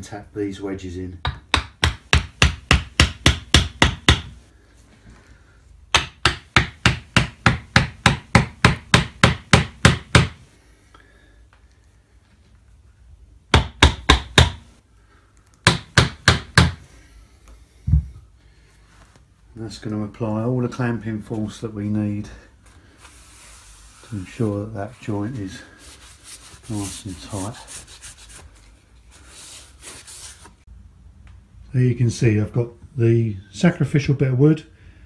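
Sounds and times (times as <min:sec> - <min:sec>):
hammer tapping wedges: 0:01.2 - 0:04.4, 0:05.9 - 0:10.4.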